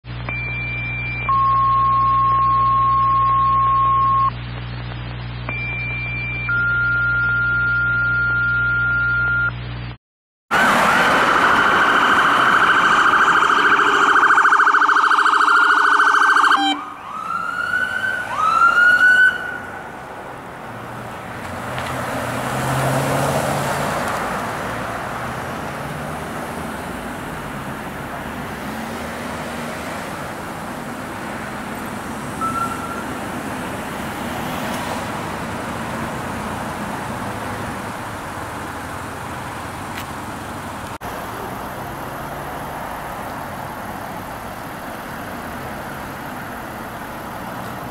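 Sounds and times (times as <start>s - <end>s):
road traffic noise: 0.0s - 47.9s
two-tone alert tones: 0.3s - 4.3s, 13.3s - 16.9s, 32.4s - 33.1s
emergency vehicle siren: 10.5s - 20.0s.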